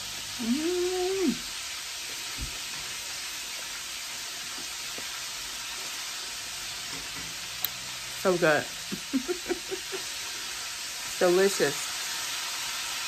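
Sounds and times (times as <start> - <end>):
fish frying in hot oil: 0.0 - 13.0
person humming mmm: 0.3 - 1.5.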